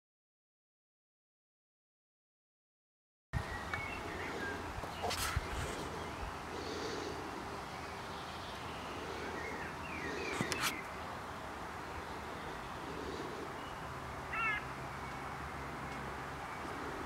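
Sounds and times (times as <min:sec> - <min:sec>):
steady background hiss: 0:03.4 - 0:17.0.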